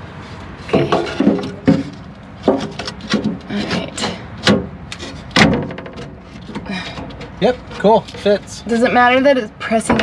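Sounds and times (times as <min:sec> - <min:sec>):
wooden board scraping: 0:00.1 - 0:08.5
wooden board knocking: 0:00.7 - 0:04.7.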